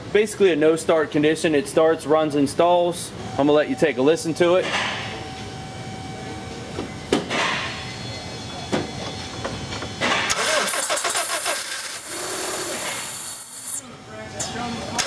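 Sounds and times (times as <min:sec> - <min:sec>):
car engine cranking: 0:10.3 - 0:13.2.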